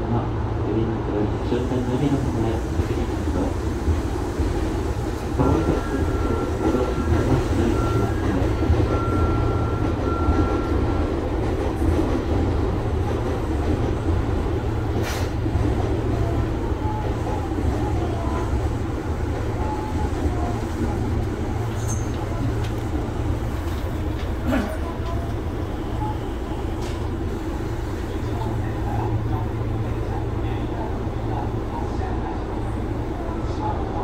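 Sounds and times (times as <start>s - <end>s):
train wheels rumbling on track: 0.0s - 34.0s.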